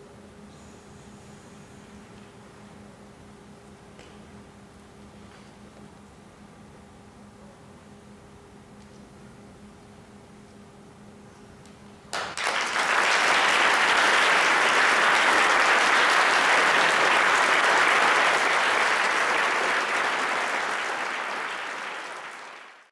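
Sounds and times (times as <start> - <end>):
audience applause: 12.1 - 22.9.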